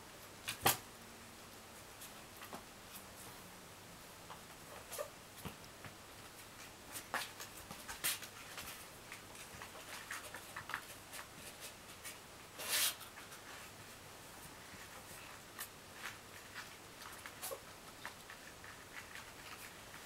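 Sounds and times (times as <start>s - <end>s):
kitten claws scratching fabric: 14.6s - 20.0s.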